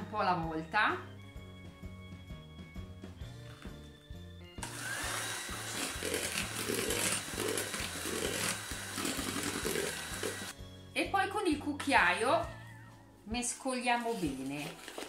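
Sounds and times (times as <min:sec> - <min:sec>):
background music with low notes: 0:00.0 - 0:15.0
electric hand mixer whisking batter: 0:04.6 - 0:10.6.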